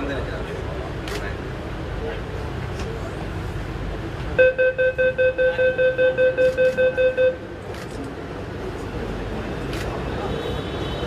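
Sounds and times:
train carriage background noise: 0.0s - 11.0s
train door warning beeps: 4.4s - 7.4s.

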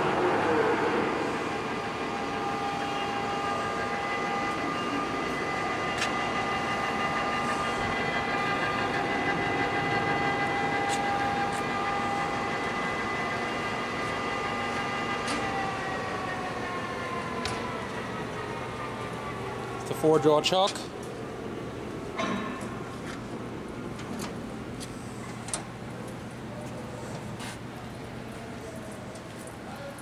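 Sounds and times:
lathe gear whine: 0.0s - 26.5s.

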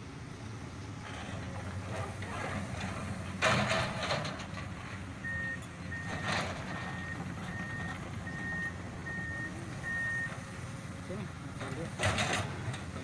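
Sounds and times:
diesel engine humming: 0.0s - 13.0s
reversing alarm beeping: 5.2s - 10.4s.

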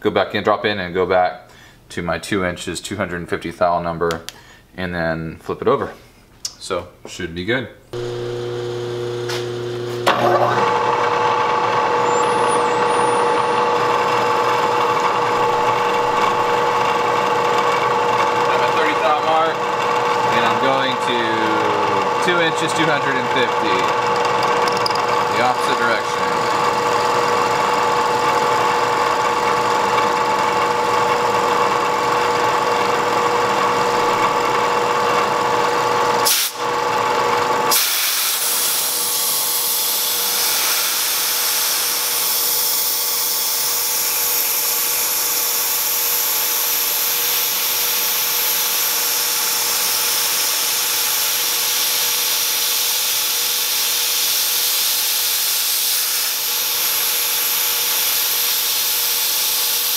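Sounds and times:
milling machine whine: 8.0s - 37.7s.

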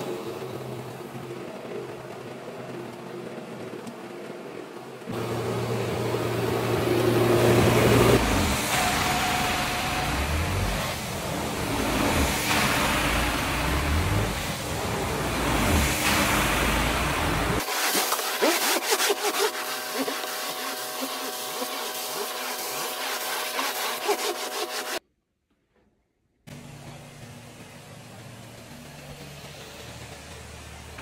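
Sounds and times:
carpet scrubbing machine humming: 5.1s - 25.0s
rushing suction of extraction wand: 15.3s - 25.0s.

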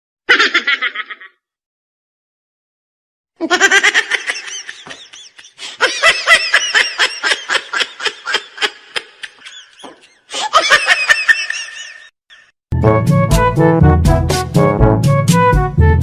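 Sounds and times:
high-pitched giggling: 0.3s - 1.4s, 3.4s - 12.5s.

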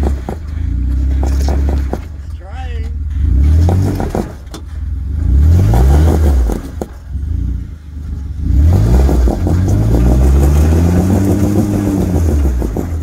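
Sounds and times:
engine revving under load: 2.9s - 13.0s.

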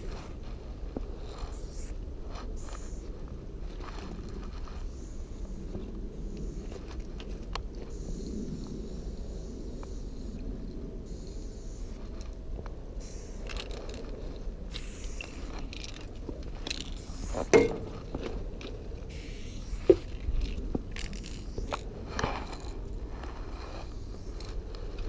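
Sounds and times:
spray paint cans hissing: 1.1s - 3.1s, 4.7s - 7.0s, 7.8s - 10.4s, 11.0s - 12.3s, 13.0s - 17.9s, 19.0s - 24.8s.

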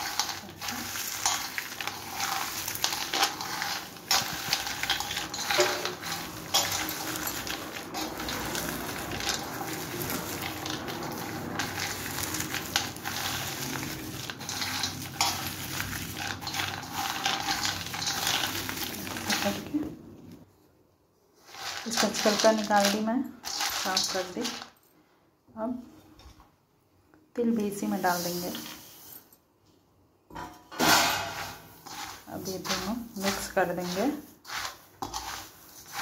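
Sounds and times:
peanuts rattling in metal bowl: 0.0s - 20.0s, 21.4s - 24.8s, 31.2s - 36.0s.

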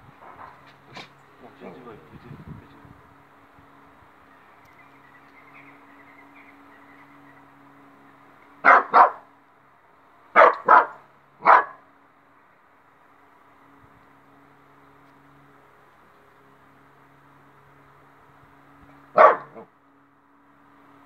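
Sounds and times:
small dog barking: 8.6s - 9.2s, 10.4s - 11.8s, 19.2s - 19.7s.

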